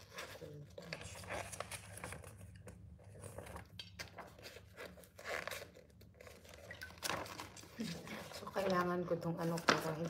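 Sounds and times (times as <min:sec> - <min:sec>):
paper rustling: 0:00.0 - 0:10.0.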